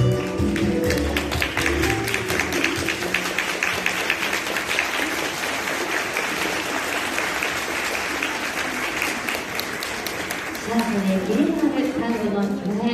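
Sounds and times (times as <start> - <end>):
tango music: 0.0 - 5.2
audience applauding: 0.0 - 11.8.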